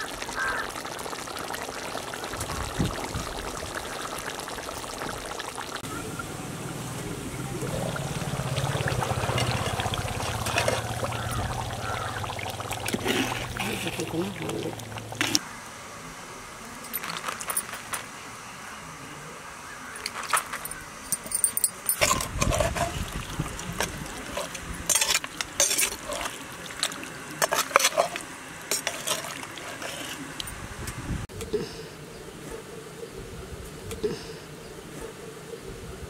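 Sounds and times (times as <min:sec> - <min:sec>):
ladle scraping a clay pot: 0:08.6 - 0:15.4, 0:21.8 - 0:30.5.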